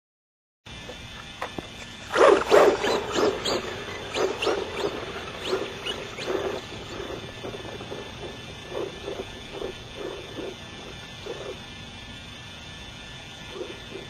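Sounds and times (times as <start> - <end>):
toy truck motor surging: 2.0 - 12.1.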